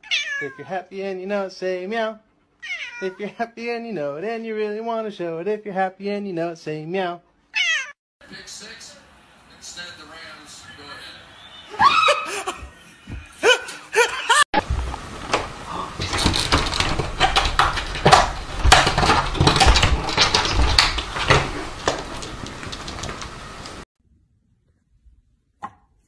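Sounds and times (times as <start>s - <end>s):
people laughing hard: 11.7s - 14.5s.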